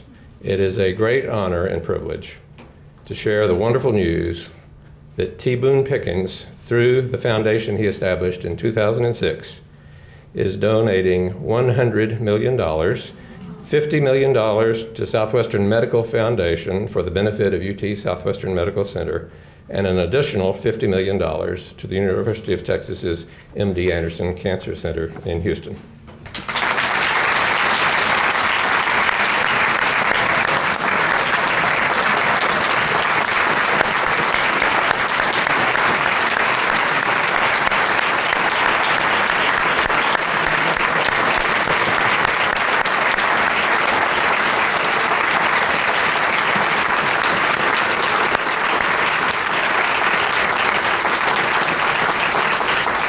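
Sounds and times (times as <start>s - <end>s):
audience applauding: 26.3s - 53.0s.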